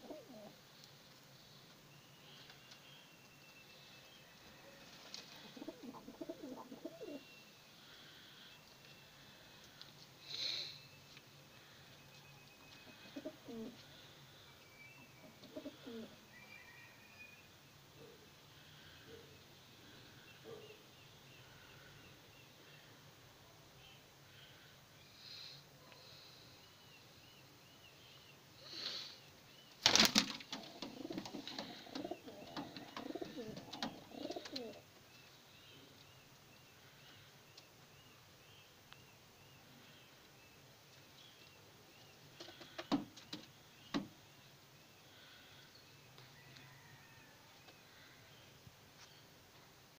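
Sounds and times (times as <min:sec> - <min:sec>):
pigeons cooing: 0:00.0 - 0:00.6, 0:05.1 - 0:07.3, 0:12.8 - 0:13.8, 0:15.2 - 0:16.2, 0:29.8 - 0:34.9
faint high chirp: 0:16.3 - 0:17.5
pigeon wings flapping: 0:29.8 - 0:31.8.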